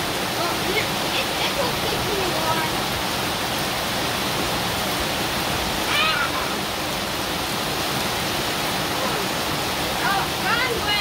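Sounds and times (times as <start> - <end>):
heavy rain on pavement: 0.0 - 11.0
child squealing: 5.8 - 6.6.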